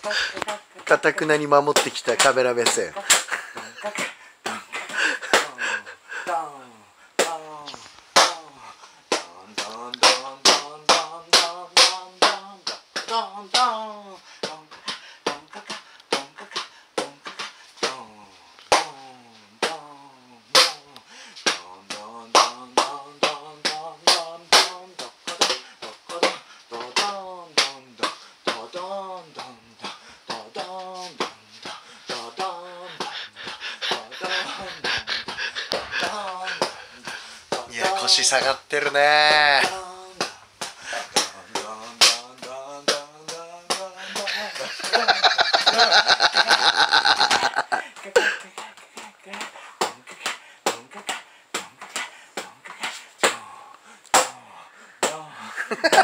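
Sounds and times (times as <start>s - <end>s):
man chanting: 0.0s - 51.8s
man calling out: 37.7s - 39.8s.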